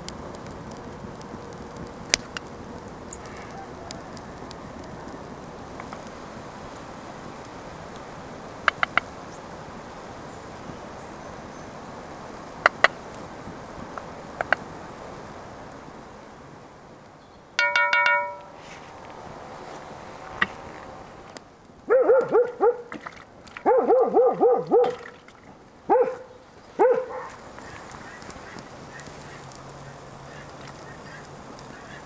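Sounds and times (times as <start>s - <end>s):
ringing metal taps: 17.6s - 18.6s
geese honking: 27.6s - 32.0s.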